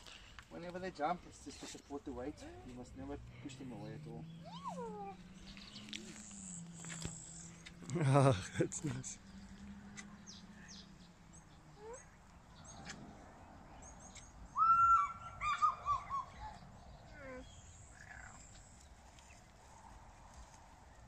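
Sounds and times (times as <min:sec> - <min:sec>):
birds chirping: 0:00.1 - 0:19.7
bird whistle with falling notes: 0:14.6 - 0:16.4.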